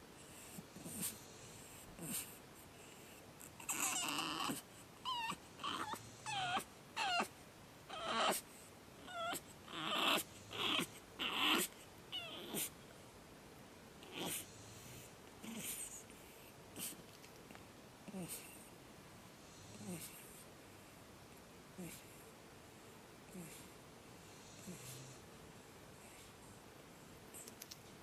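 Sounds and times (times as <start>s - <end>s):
puppy whimpering: 3.5s - 7.3s, 7.9s - 8.4s, 9.0s - 12.7s
puppy screaming cries: 3.6s - 7.3s, 7.9s - 8.4s
puppy yelping and whining: 3.6s - 7.3s, 7.9s - 8.4s, 9.0s - 12.7s.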